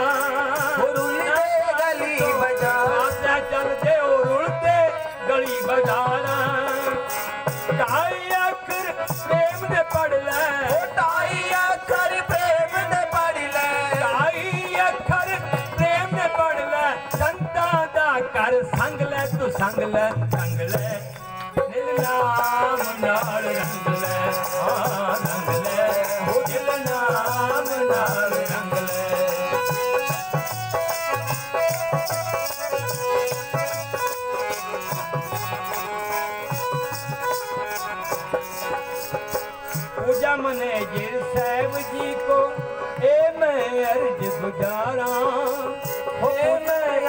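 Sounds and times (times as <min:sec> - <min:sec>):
devotional melody: 0:00.0 - 0:47.0
rhythmic percussion: 0:00.0 - 0:47.0.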